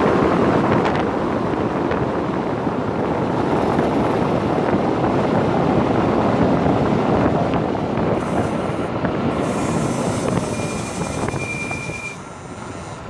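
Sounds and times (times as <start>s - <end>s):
tyre road noise: 0.0s - 13.0s
wind rushing over microphone: 0.0s - 13.0s
thin high whine: 8.1s - 13.0s.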